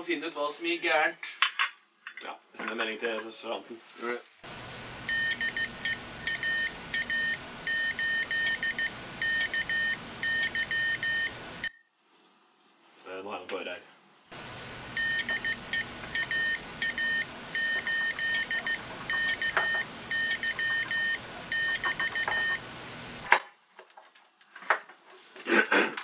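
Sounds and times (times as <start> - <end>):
radio hiss: 4.0 - 11.6, 14.3 - 23.2
morse code beeps: 5.1 - 11.8, 14.9 - 22.6.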